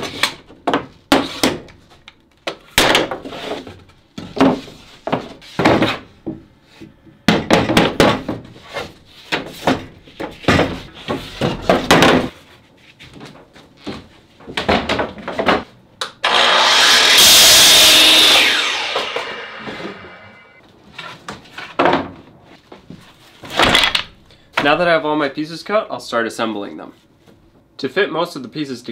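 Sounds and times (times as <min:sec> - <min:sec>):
miter saw cutting board: 0:16.2 - 0:20.6.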